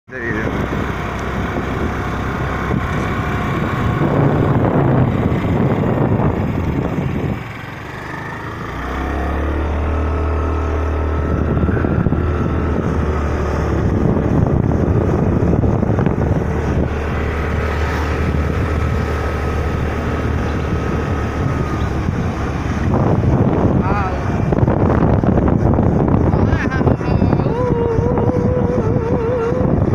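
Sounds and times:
vehicle engine humming: 0.0 - 29.9
wind on microphone: 0.1 - 29.9.

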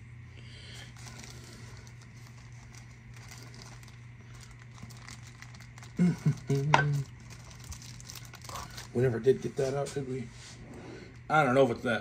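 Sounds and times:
steady low hum: 0.0 - 12.0
small parts clicking and rustling: 1.0 - 9.0.

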